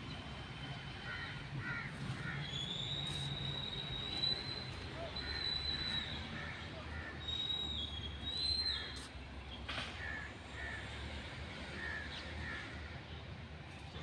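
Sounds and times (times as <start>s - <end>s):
crows cawing: 1.0s - 2.5s, 10.0s - 11.0s, 11.8s - 12.9s.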